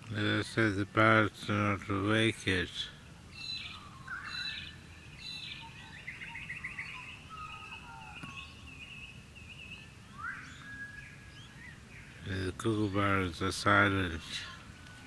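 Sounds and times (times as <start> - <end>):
birds chirping: 0.0 - 15.0
bird trill: 3.3 - 15.0.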